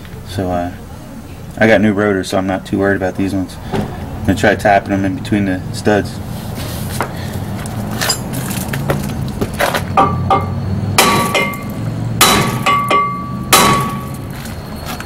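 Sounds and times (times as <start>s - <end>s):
hammer clanging on metal rotor: 9.9s - 14.4s.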